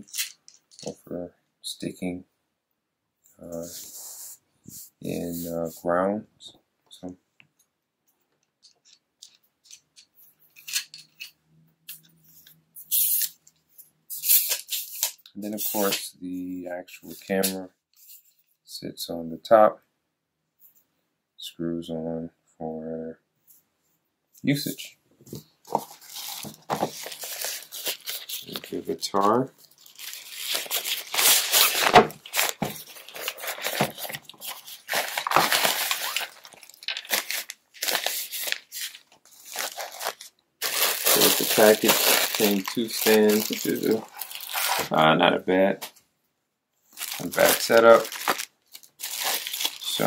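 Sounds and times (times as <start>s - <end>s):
packaging rustling and crinkling: 25.3s - 45.0s, 46.9s - 50.0s.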